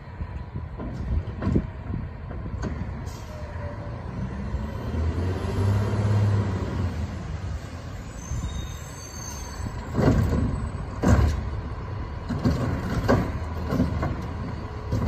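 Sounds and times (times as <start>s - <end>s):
distant diesel truck engine revving: 4.0s - 7.1s.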